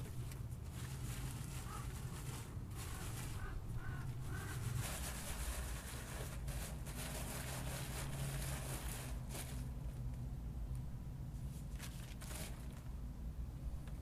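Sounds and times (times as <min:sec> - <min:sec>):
berries rustling in basket: 0:00.0 - 0:09.8.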